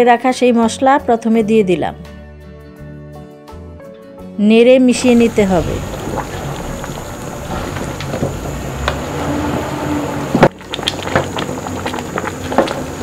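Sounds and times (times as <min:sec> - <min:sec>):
stew bubbling in a pot: 0:05.0 - 0:13.0.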